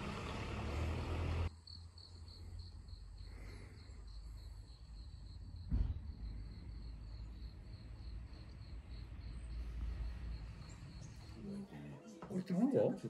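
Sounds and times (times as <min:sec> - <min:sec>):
insect chirping: 0:01.5 - 0:11.4
thump: 0:05.6 - 0:06.5.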